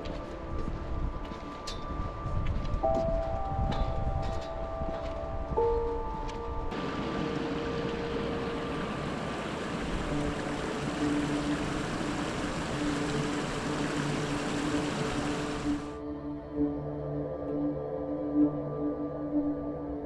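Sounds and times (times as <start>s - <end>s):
stream rushing hiss: 6.8s - 16.0s.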